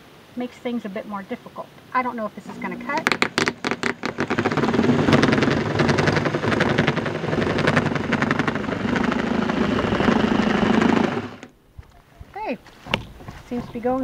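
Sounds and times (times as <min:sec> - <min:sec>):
jigsaw cutting wood panel: 0:03.1 - 0:11.5.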